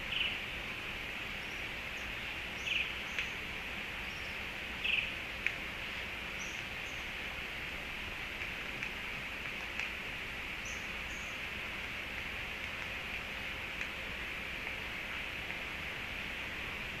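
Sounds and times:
high-pitched outdoor hiss: 0.0s - 17.0s
sharp clicks: 8.4s - 10.0s, 12.2s - 13.0s.

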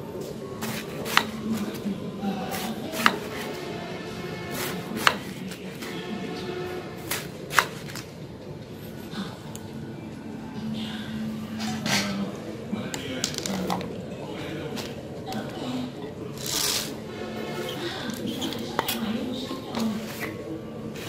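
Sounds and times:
knife cutting strokes: 0.6s - 1.8s, 2.5s - 3.6s, 4.5s - 6.0s, 7.0s - 8.0s.

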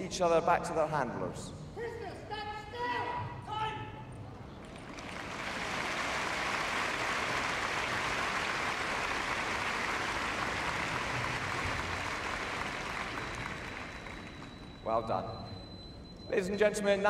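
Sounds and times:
audience applauding: 4.6s - 14.8s.

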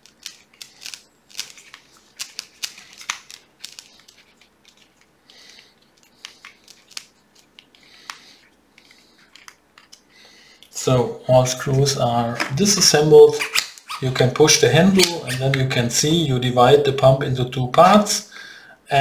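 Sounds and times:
screwdriver clicking and scraping screw: 13.4s - 14.0s.

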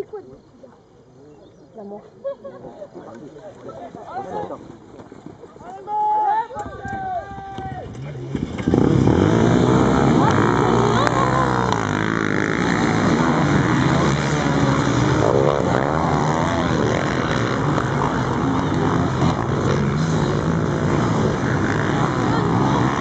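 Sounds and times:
quad engines revving: 7.3s - 23.0s.

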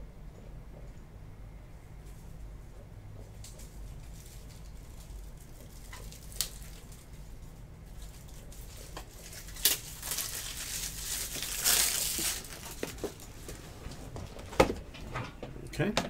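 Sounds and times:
plastic wrapper crinkling: 3.4s - 13.4s
plastic pack tearing snap: 5.8s - 7.0s, 9.0s - 13.0s.

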